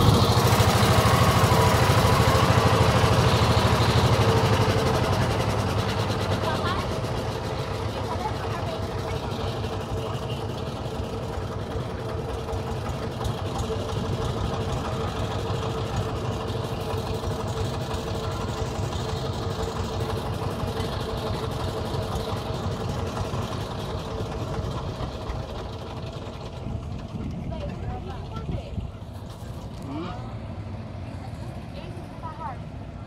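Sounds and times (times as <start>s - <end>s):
boat engine running: 0.0s - 33.0s.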